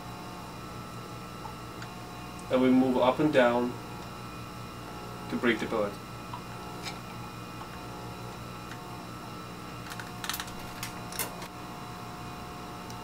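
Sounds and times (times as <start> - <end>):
cabinet blower hum: 8.0 - 11.6.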